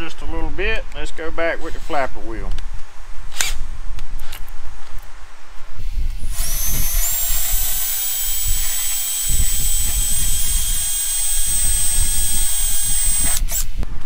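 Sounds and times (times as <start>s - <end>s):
cordless drill whining: 6.2s - 13.8s
flap wheel sanding metal: 6.2s - 13.8s.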